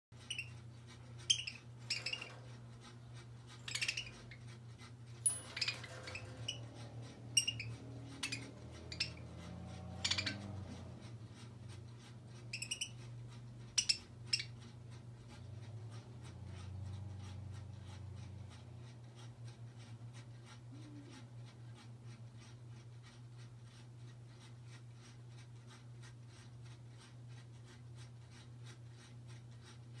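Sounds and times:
beaks and claws clicking on toy: 0.2 - 30.0
small metal bells tinkling: 5.2 - 5.8.

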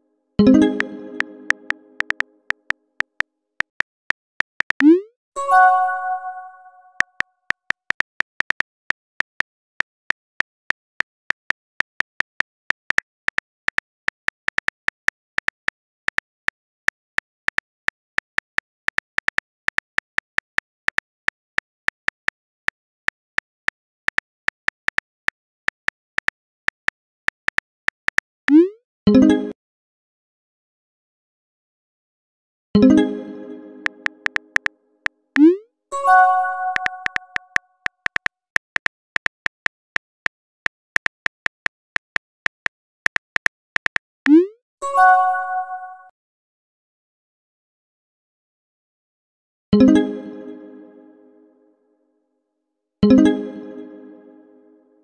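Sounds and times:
bell-like message chime: 0.4 - 2.0, 5.4 - 7.0, 36.0 - 37.4, 44.9 - 46.1
phone keyboard clicks: 1.2 - 4.9, 33.9 - 34.7, 36.7 - 44.0.

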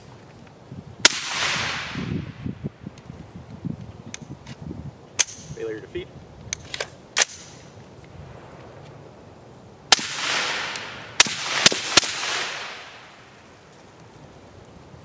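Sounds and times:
suppressed rifle shots: 1.0 - 2.0, 9.9 - 13.2
rolling echo: 9.9 - 13.5.

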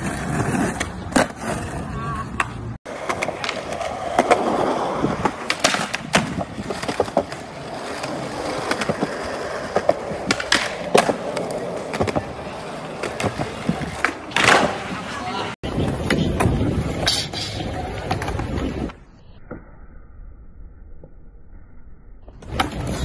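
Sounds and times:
skateboard wheels rolling on concrete: 0.0 - 19.2, 22.3 - 23.0
skateboard pops and clacks: 2.3 - 4.5, 5.2 - 12.4, 13.0 - 15.0.

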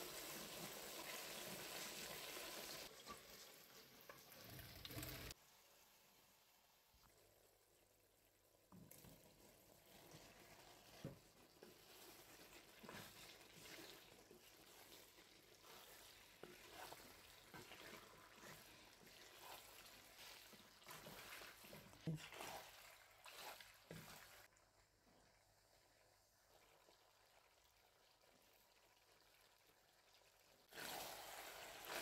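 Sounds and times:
faint sizzling: 0.0 - 8.0
spatula stirring and scraping: 9.3 - 24.5.

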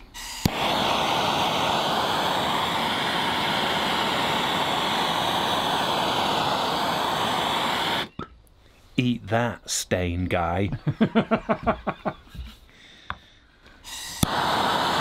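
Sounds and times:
propane torch hissing: 0.0 - 8.2, 13.8 - 15.0.

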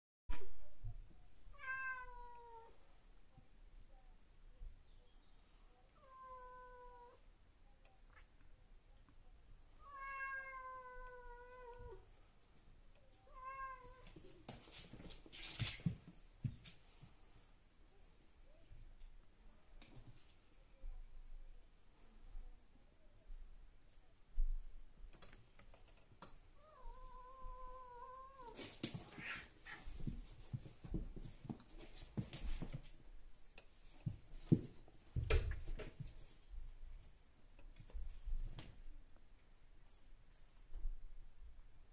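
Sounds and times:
cat meowing: 1.5 - 2.8, 9.8 - 12.0, 13.3 - 14.0, 26.6 - 28.6
cats scuffling: 13.6 - 17.6, 24.4 - 39.0.

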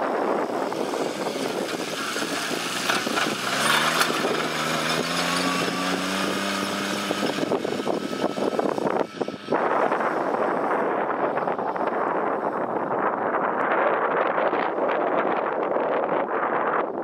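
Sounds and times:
tractor diesel engine: 0.0 - 13.1
wind on microphone: 0.0 - 17.0.

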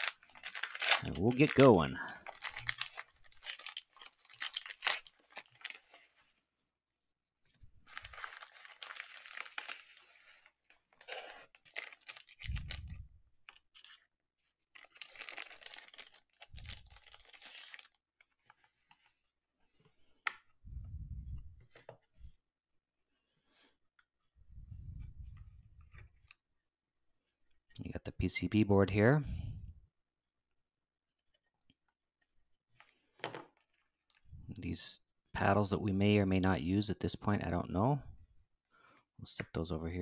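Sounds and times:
plastic wrapping crinkling and tearing: 0.0 - 6.1, 7.8 - 14.0, 14.7 - 18.0.

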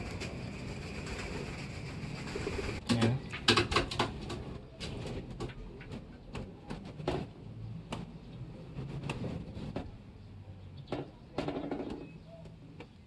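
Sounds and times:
pigeons cooing: 0.0 - 2.8.

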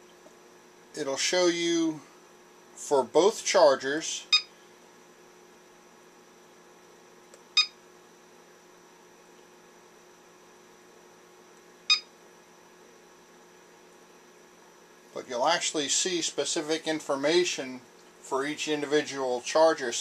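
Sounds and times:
battery charger beeping: 11.9 - 12.1.

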